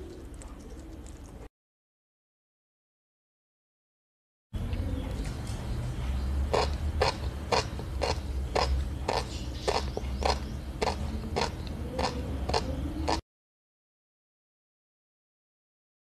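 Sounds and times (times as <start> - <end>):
chewing fish roe crunch: 0.0 - 1.5, 6.5 - 13.2
steady low hum: 4.6 - 13.2.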